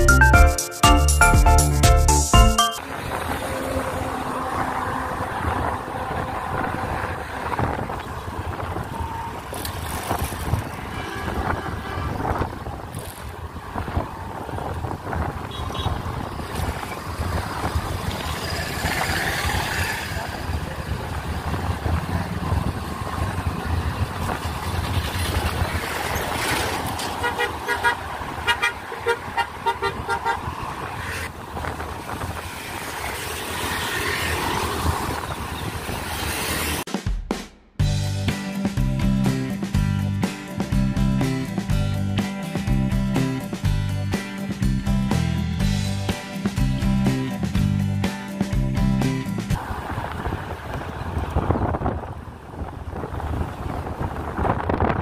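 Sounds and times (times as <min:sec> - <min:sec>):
road traffic rumbling: 0:00.0 - 0:36.9, 0:37.8 - 0:55.0
horn short beeps: 0:02.3 - 0:02.8
vehicle horns honking: 0:10.7 - 0:12.7, 0:15.4 - 0:16.3, 0:27.1 - 0:30.6.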